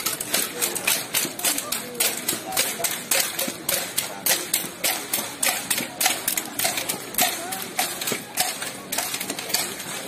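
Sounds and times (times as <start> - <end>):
faint voices: 0.0 - 10.0.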